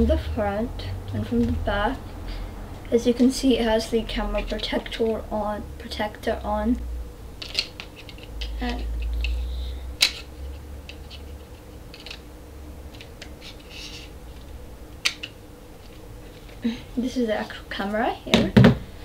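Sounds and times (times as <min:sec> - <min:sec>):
low rumble: 0:00.0 - 0:04.2.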